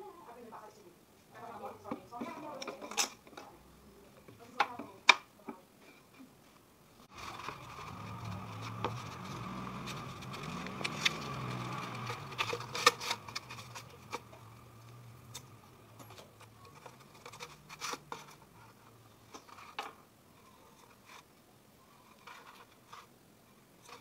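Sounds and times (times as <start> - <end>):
paper crinkling and rustling: 7.0 - 23.1.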